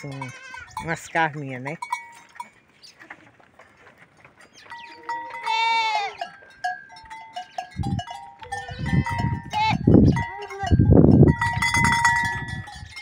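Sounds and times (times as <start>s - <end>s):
goats bleating: 0.0s - 0.9s, 4.9s - 6.4s, 8.4s - 10.8s.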